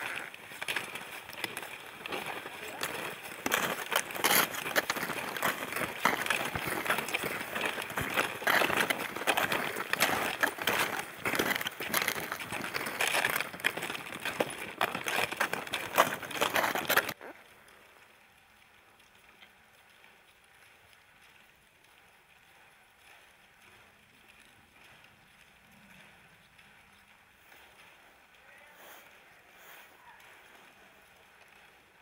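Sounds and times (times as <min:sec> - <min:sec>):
snowshoe footsteps crunching snow: 0:00.0 - 0:17.4.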